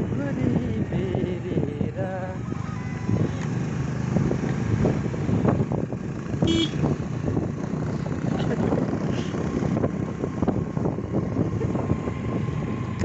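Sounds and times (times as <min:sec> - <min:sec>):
motor scooter engine running: 0:00.0 - 0:13.0
scooter horn toot: 0:06.4 - 0:06.9.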